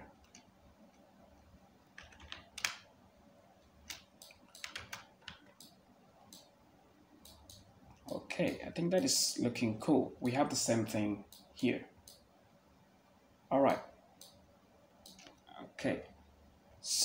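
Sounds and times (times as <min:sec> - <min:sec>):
faint steady hum: 0:00.0 - 0:17.0
keyboard and mouse clicking: 0:02.0 - 0:02.9, 0:03.8 - 0:06.5, 0:07.2 - 0:09.2, 0:11.3 - 0:12.2, 0:15.0 - 0:15.4.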